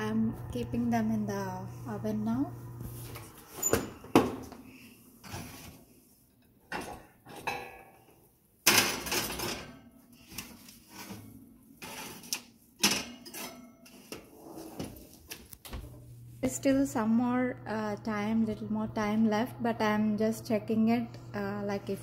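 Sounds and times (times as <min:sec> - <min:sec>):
bakeware clattering on metal rack: 0:08.6 - 0:09.8.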